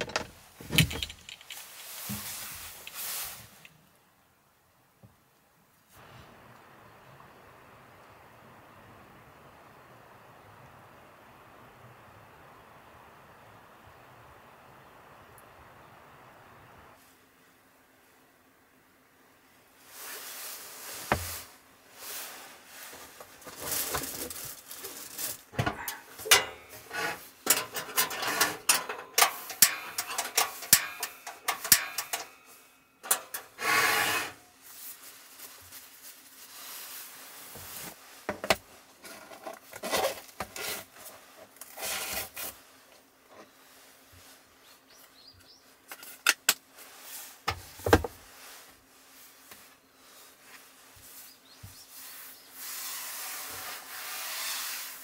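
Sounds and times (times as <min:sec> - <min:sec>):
paper rustling: 0:22.9 - 0:26.1.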